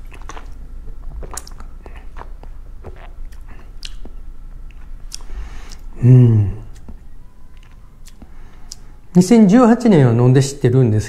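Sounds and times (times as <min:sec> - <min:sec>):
wet slurps and mouth noises: 0:01.2 - 0:04.1.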